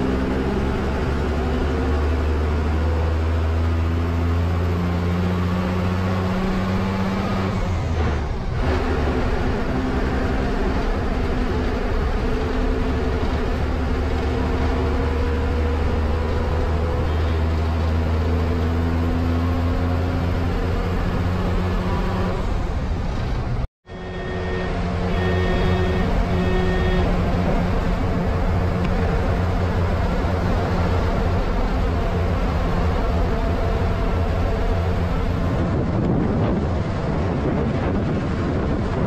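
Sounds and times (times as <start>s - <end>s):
bus engine running: 0.0s - 39.0s
tyre and road noise: 0.0s - 39.0s.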